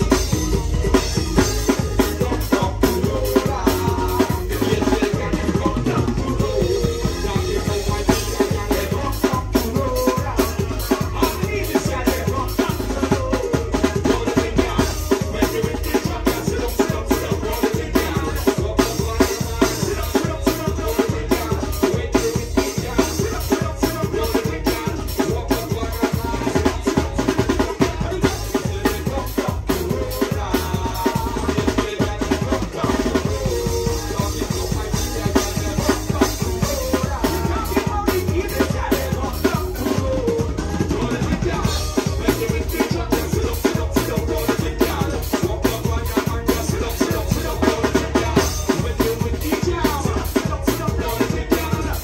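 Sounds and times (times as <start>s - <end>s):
drum kit beat: 0.0s - 52.0s
guitar: 0.0s - 52.0s.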